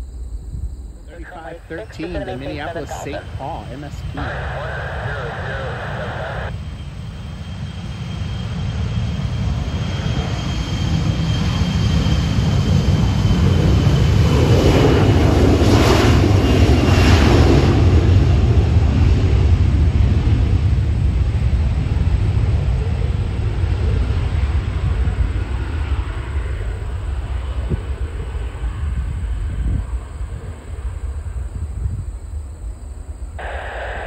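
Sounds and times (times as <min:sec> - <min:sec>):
jet engines passing by: 0:00.0 - 0:34.0
thin falling whine: 0:01.1 - 0:06.6, 0:33.4 - 0:34.0.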